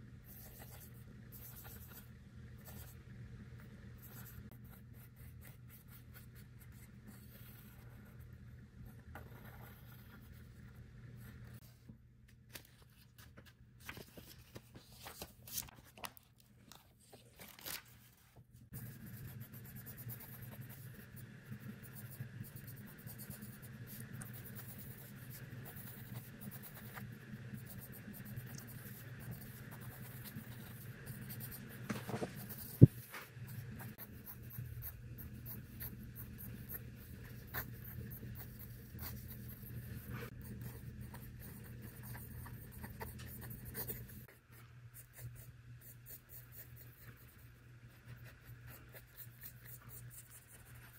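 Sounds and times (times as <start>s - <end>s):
low steady hum: 0.0s - 50.9s
pen scratching on paper: 0.2s - 3.0s, 4.0s - 8.3s, 8.9s - 10.6s, 18.7s - 44.4s, 45.0s - 50.9s.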